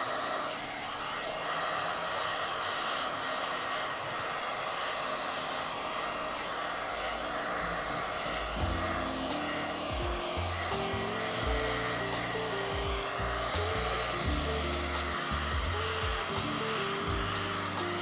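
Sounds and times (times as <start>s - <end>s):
heat gun blowing: 0.0s - 18.0s
background music: 8.5s - 18.0s.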